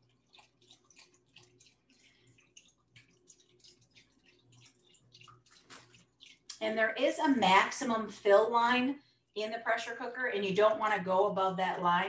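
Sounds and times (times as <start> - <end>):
liquid splashing into pot: 0.0 - 6.8.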